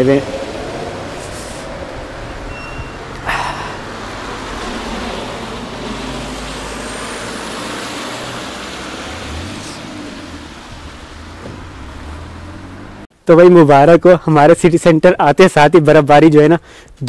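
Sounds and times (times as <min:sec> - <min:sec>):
tyres hissing on wet road: 0:00.0 - 0:13.1
short sharp thump: 0:11.4 - 0:11.8.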